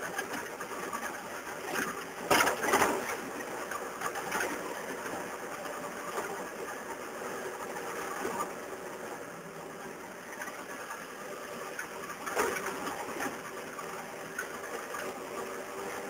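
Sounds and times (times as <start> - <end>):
loud clatter: 0.0 - 5.1
rattling on rough dirt road: 0.1 - 8.8.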